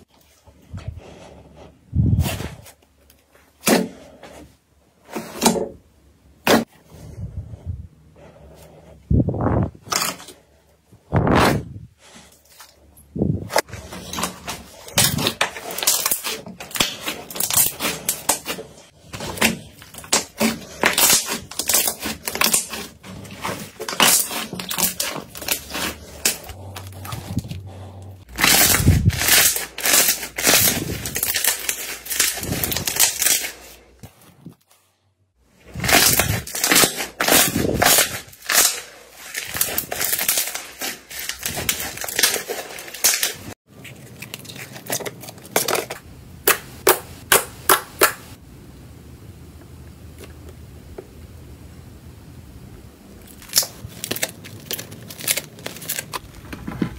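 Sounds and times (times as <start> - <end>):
slime popping and crackling: 14.0 - 27.5, 53.3 - 56.9.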